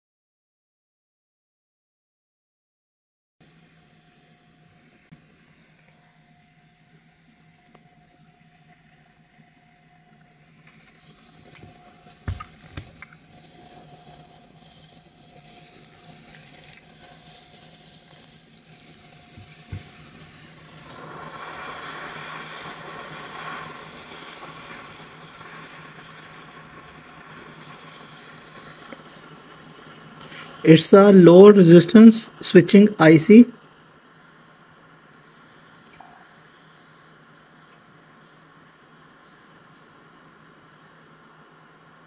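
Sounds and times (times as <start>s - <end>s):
faint steady hum: 3.4s - 42.0s
hot air gun hissing: 11.0s - 42.0s.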